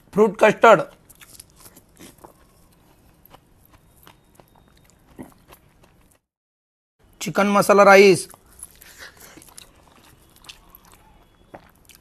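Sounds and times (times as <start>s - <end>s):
lip smacks and chewing: 8.3s - 12.0s.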